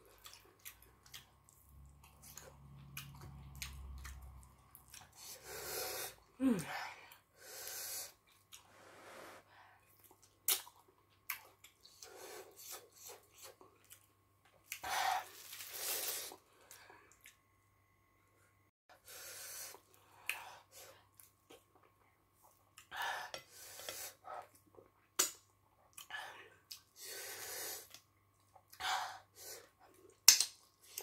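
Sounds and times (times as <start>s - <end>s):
lip smacks and chewing: 0.2s - 5.2s
person breathing: 5.2s - 9.9s, 26.1s - 28.0s.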